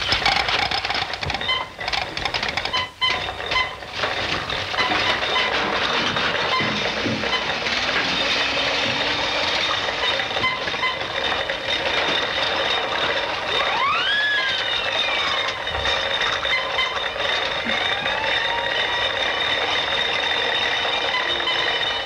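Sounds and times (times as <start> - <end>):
mechanical clattering and rattling: 0.0 - 22.0
sweeping whistle: 13.6 - 15.5.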